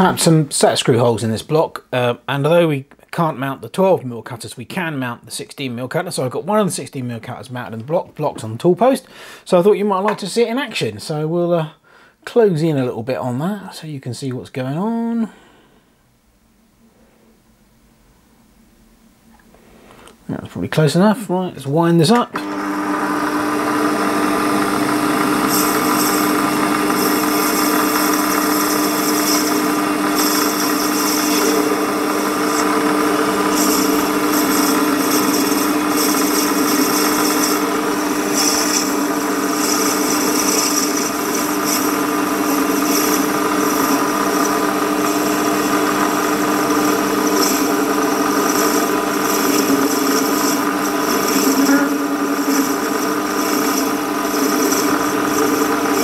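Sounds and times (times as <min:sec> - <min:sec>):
lathe motor whine: 0:22.3 - 0:56.0
cutter hissing on metal: 0:23.9 - 0:56.0.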